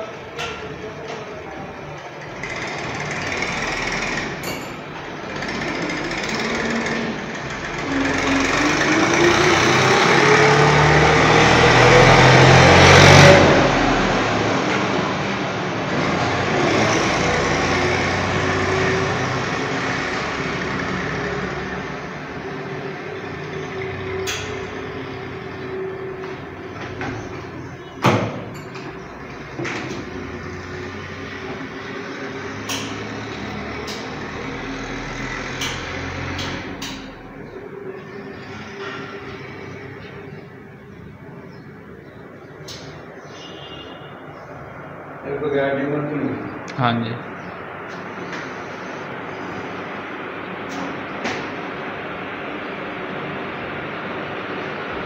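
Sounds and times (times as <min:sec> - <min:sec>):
motor whine rising in pitch: 0:05.4 - 0:27.6.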